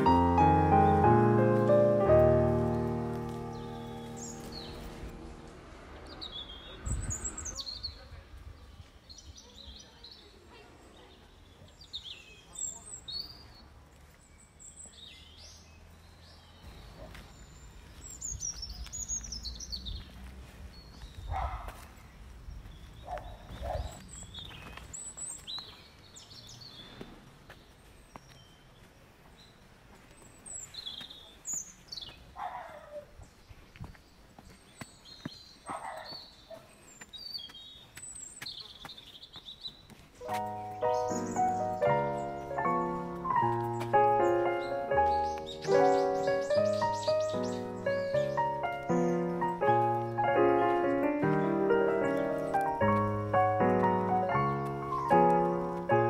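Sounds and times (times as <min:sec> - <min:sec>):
birds chirping and calling: 0:00.0 - 0:05.4, 0:34.4 - 0:56.0
songbirds calling: 0:00.0 - 0:56.0.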